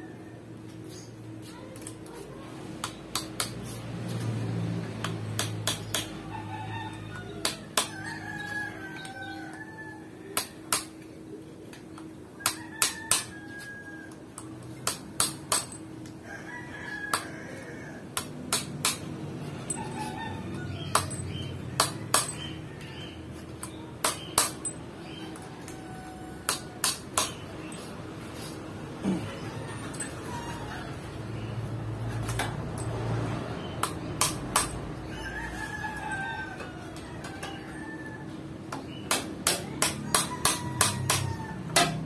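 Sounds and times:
rooster crowing: 6.2s - 10.6s, 12.4s - 14.2s, 16.2s - 18.2s, 19.6s - 23.3s, 25.2s - 26.8s, 29.0s - 31.5s, 35.0s - 38.6s, 39.6s - 42.0s.

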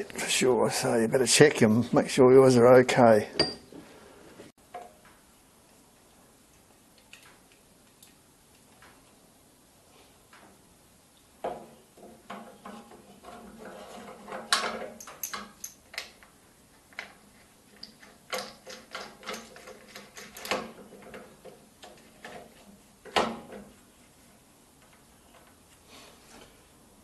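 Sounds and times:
metallic clicks and knocks: 12.0s - 16.3s.

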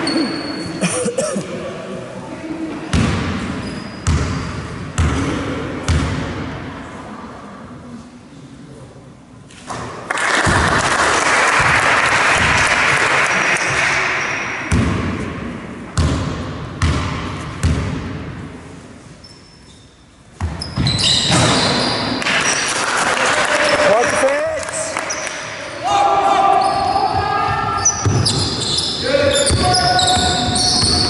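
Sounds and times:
shoes squeaking on court: 0.0s - 0.8s, 3.4s - 4.5s, 19.0s - 22.7s, 25.0s - 25.6s, 26.6s - 31.0s
basketball bouncing on hardwood floor: 16.0s - 18.1s.

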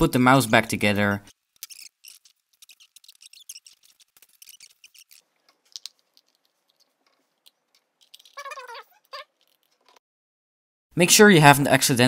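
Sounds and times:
short pitched squeak: 1.6s - 5.2s
plastic mouse parts clicking: 1.6s - 9.8s.

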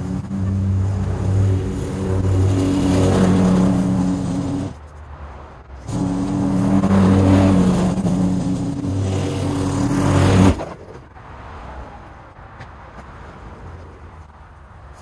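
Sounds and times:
lawn mower engine running: 0.0s - 4.8s, 5.8s - 10.7s.

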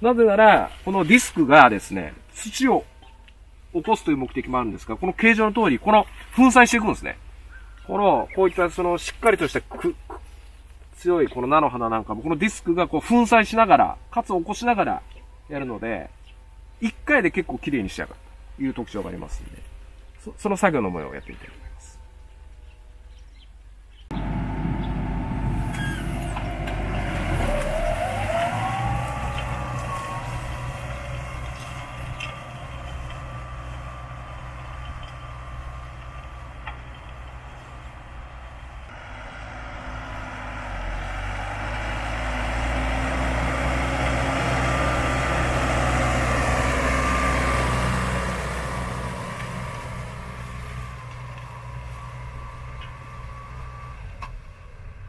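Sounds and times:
tractor engine under load: 24.0s - 55.0s.

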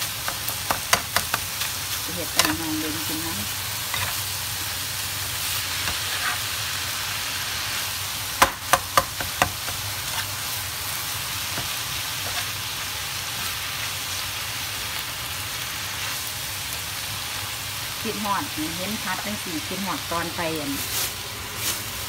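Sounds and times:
filling sizzling in a pan: 0.0s - 22.0s.

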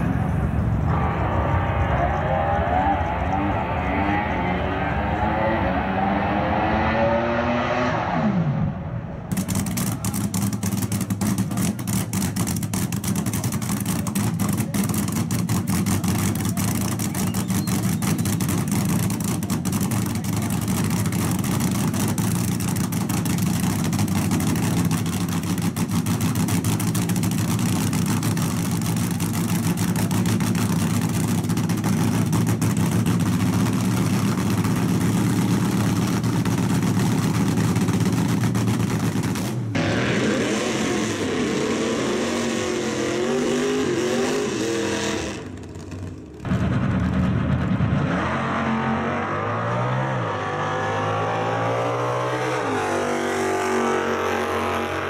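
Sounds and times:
race car engine idling: 9.2s - 39.8s, 45.4s - 48.0s.

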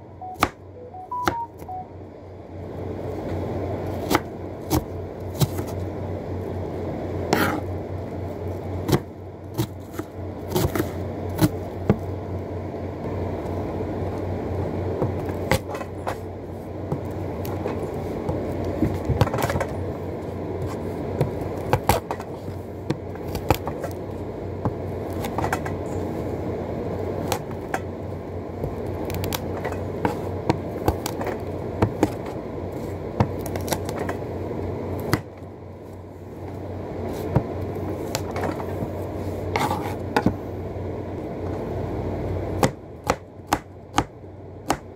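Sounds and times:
low hum: 0.0s - 44.7s
knife scraping: 7.3s - 7.7s, 39.4s - 40.1s.

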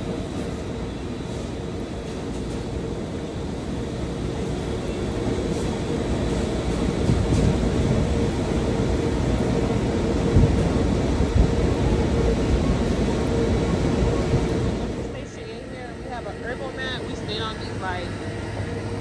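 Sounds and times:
low rumble of machinery: 9.1s - 19.0s.

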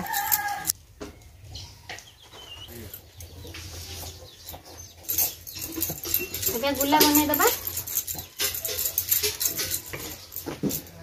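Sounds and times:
chickens clucking: 1.2s - 6.4s.

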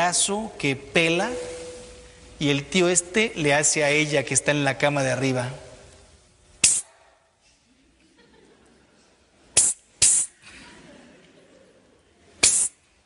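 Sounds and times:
man hissing psst: 6.6s - 6.9s, 9.6s - 10.4s, 12.4s - 12.8s.

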